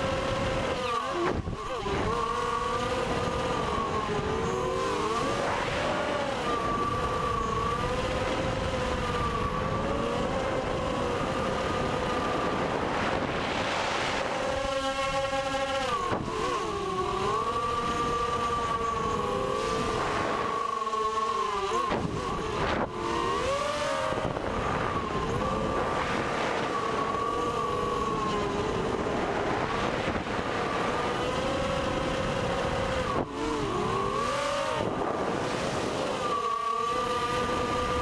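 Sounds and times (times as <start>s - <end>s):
quadcopter motors whining: 0.0s - 38.0s
wind noise: 0.0s - 38.0s.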